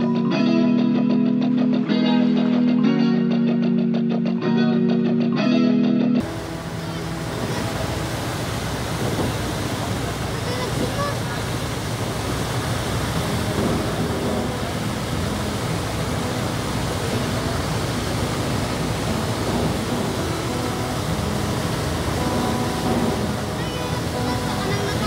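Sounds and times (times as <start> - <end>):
low engine hum: 6.2 - 25.0
water rushing in ship wake: 6.2 - 25.0.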